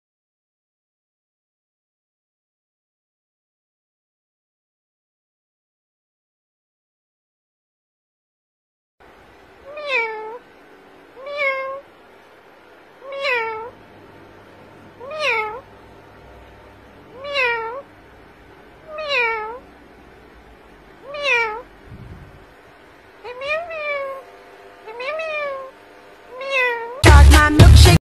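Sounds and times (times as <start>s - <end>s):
parakeet mimicking cat meows: 9.6s - 10.5s, 11.1s - 12.0s, 13.0s - 13.8s, 14.8s - 15.7s, 17.0s - 17.9s, 18.8s - 19.8s, 20.9s - 22.4s, 23.2s - 28.0s.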